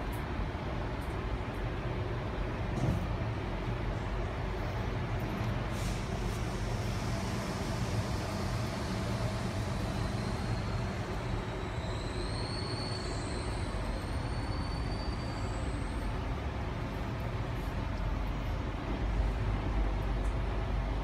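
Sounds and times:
electric train rumbling on track: 0:00.0 - 0:21.0
faint high whine: 0:05.8 - 0:16.3.

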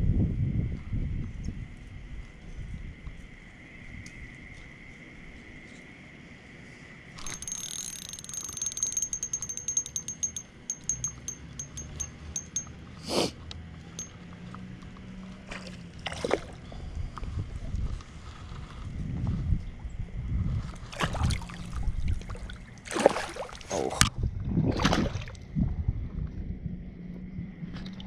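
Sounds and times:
fishing reel drag clicking: 0:07.2 - 0:12.7.

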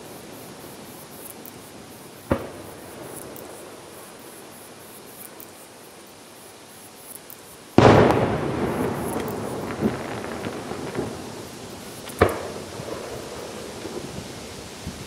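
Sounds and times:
firework crack: 0:00.0 - 0:04.6, 0:07.8 - 0:15.0
faint steady hiss: 0:00.0 - 0:15.0.

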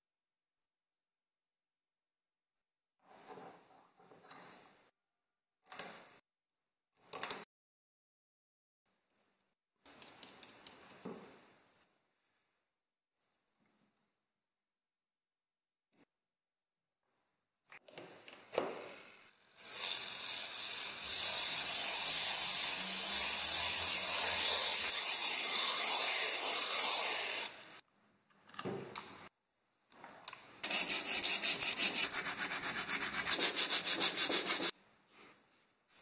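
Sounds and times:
sandpaper rubbing spinning motor shaft: 0:19.6 - 0:27.7, 0:30.6 - 0:34.7
sandpaper rubbing on metal: 0:30.6 - 0:34.7.

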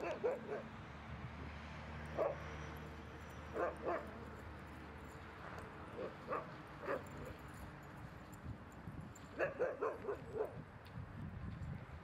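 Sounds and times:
dogs yipping: 0:00.0 - 0:00.7, 0:09.4 - 0:10.6.

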